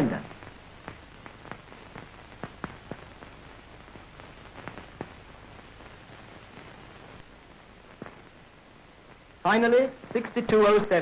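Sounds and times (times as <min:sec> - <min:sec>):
faint high whine: 0:00.0 - 0:11.0
film soundtrack hiss and crackles: 0:00.0 - 0:11.0.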